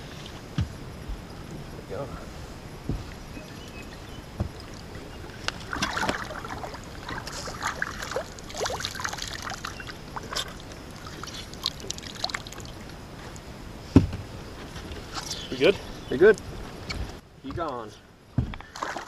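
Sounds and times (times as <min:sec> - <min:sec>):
water splashing and dripping: 0:02.8 - 0:13.5, 0:18.7 - 0:19.0.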